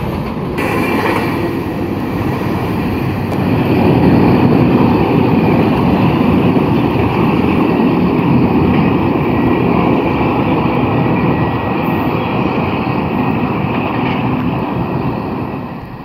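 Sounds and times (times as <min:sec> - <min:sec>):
freight cars rolling over rails: 0:00.0 - 0:11.6.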